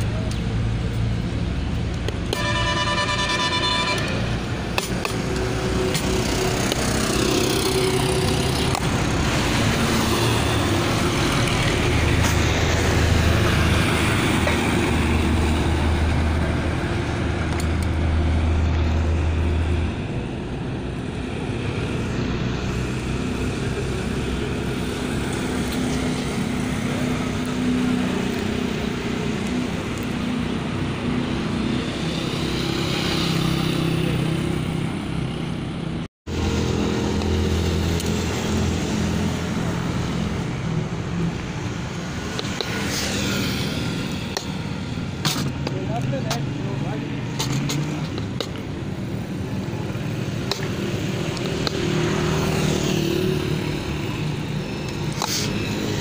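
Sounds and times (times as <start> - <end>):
vehicle engines running: 0.0 - 56.0
vehicle horn: 2.3 - 4.4.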